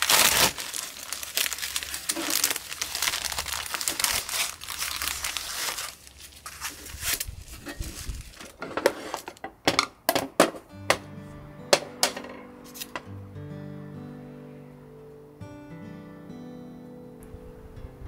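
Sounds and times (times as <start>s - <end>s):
plastic wrapper crinkling: 0.0s - 8.6s
plastic tearing: 0.0s - 9.4s, 12.7s - 12.9s.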